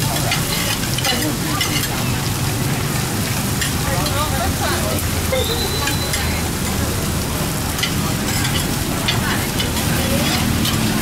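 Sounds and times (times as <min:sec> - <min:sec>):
greens sizzling in a wok: 0:00.0 - 0:11.0
metal ladle scraping a wok: 0:07.8 - 0:11.0.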